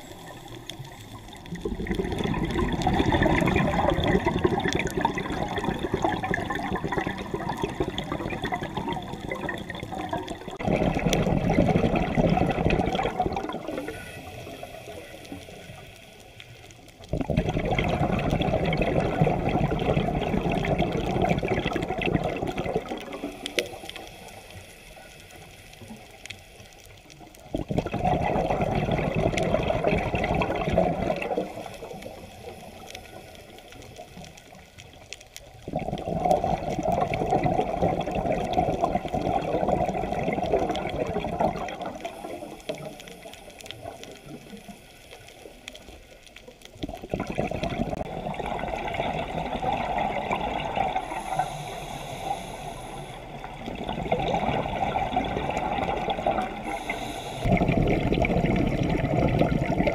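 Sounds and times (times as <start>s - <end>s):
exhaled bubbles gushing underwater: 0.0s - 24.0s, 25.2s - 59.9s
scuba diver breathing through regulator: 13.6s - 16.2s, 50.9s - 53.8s, 56.4s - 57.9s.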